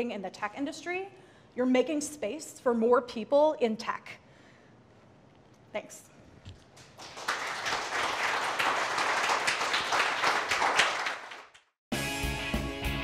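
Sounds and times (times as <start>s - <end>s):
audience applauding: 6.8s - 11.7s.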